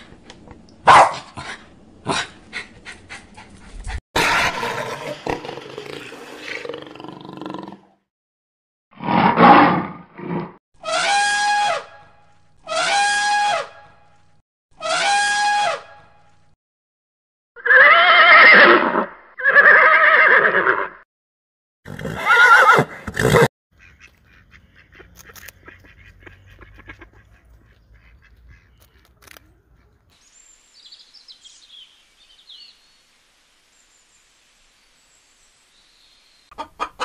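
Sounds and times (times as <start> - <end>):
horses neighing: 21.9 - 23.5.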